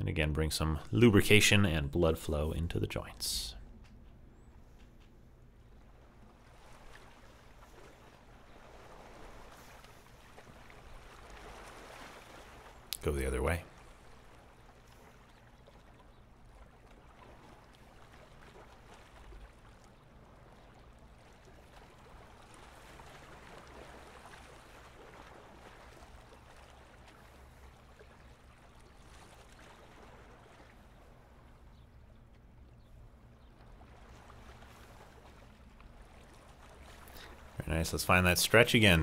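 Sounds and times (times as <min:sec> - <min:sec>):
low steady hum: 0:00.0 - 0:39.0
waves lapping on stony shore: 0:06.2 - 0:12.9, 0:13.7 - 0:31.4, 0:33.7 - 0:37.6.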